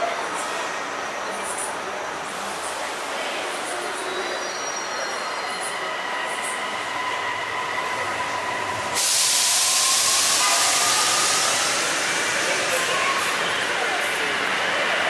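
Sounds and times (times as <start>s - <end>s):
train steady whine: 0.0s - 15.0s
loud hiss of released air: 8.8s - 13.0s.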